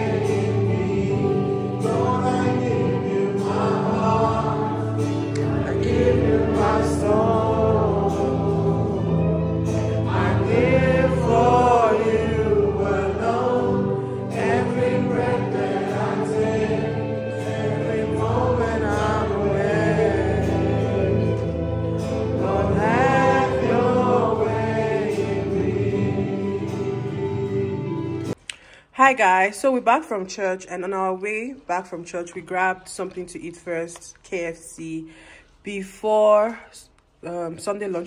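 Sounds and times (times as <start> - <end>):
choir singing gospel music: 0.0 - 28.4
instrumental accompaniment: 0.0 - 28.4.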